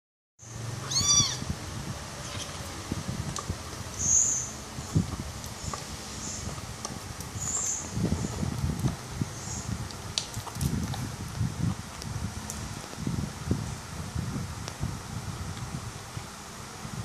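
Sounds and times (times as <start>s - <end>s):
kitten mewing: 0.8s - 1.5s, 2.2s - 2.8s.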